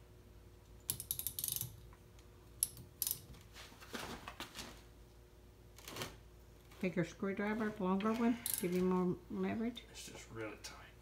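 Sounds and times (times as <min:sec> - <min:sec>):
socket ratchet clicking: 0:00.8 - 0:01.8.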